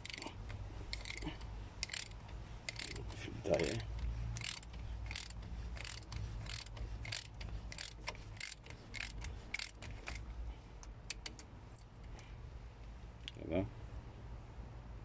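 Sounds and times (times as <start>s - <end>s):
ratchet wrench clicking: 0.0s - 10.2s.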